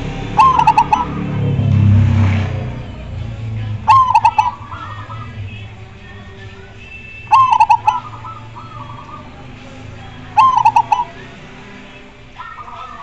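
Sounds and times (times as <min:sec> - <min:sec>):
dove cooing: 0:00.2 - 0:01.6, 0:03.7 - 0:11.3.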